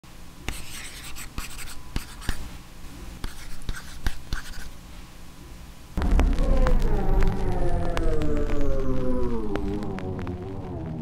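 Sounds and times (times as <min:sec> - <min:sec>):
pen writing on paper: 0:03.2 - 0:04.7.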